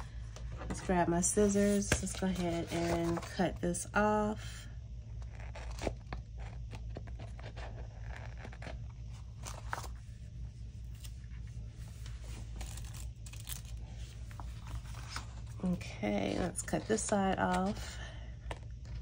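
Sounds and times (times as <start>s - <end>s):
steady low hum: 0.0s - 19.0s
paper rustling: 0.6s - 3.5s, 11.8s - 17.9s.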